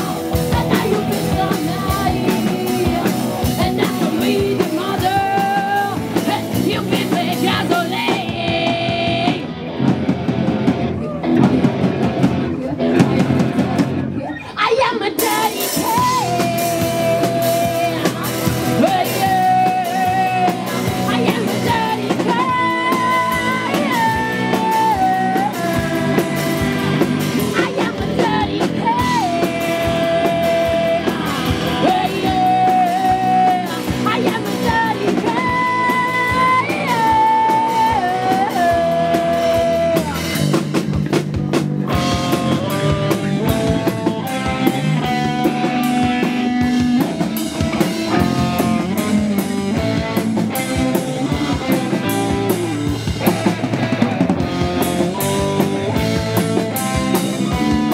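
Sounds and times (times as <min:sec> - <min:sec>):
woman singing: 0:00.0 - 0:09.5, 0:14.2 - 0:40.4
punk rock band playing: 0:00.0 - 0:57.9.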